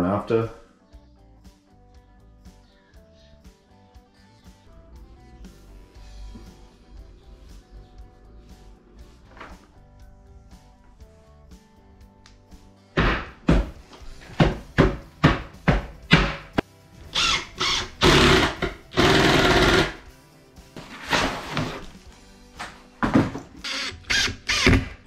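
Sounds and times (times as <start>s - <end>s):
background music: 0.0s - 25.0s
sharp knocks: 13.0s - 16.6s
power tool running: 17.0s - 20.0s, 23.6s - 25.0s.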